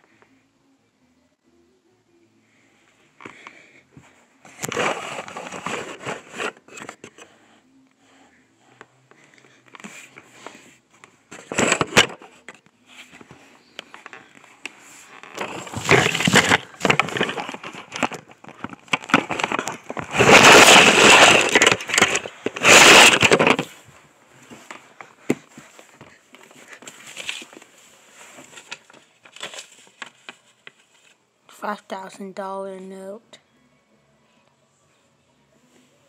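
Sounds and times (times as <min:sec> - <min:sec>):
phone handling scraping and rustling: 0:04.5 - 0:07.3, 0:09.7 - 0:31.1.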